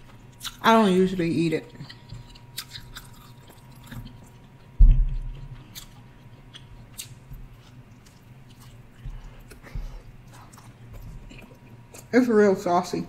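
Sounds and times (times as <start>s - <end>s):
person chewing with wet smacks: 0.0s - 0.6s, 1.5s - 12.1s
low thump: 4.8s - 5.2s.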